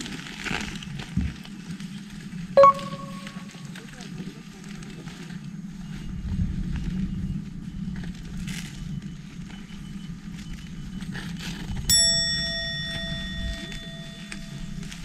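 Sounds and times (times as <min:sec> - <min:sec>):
bell ringing: 0:02.6 - 0:03.6, 0:11.9 - 0:14.8.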